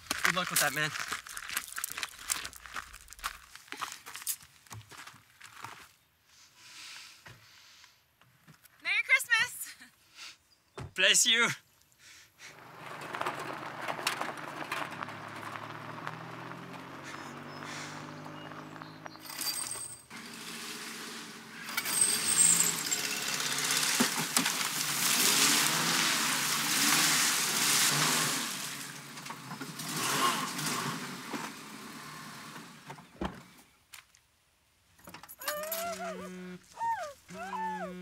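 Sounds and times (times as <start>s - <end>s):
car driving on dirt track: 12.5s - 33.6s.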